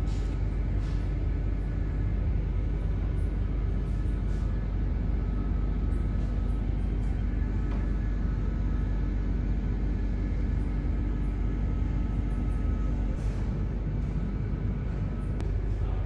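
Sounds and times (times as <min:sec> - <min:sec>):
faint even hum: 0:00.0 - 0:16.0
low rumble: 0:00.0 - 0:16.0.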